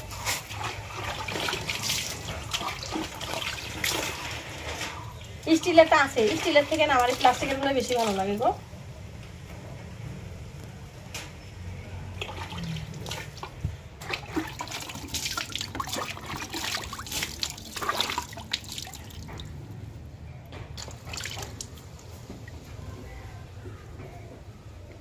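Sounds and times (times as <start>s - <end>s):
water splashing and dripping: 0.0s - 8.6s, 12.2s - 19.8s, 20.8s - 22.7s.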